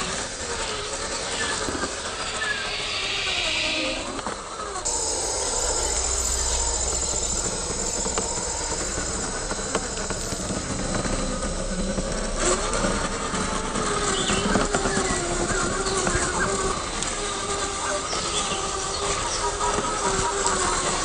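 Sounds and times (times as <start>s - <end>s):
electric motor whining: 4.0s - 18.9s.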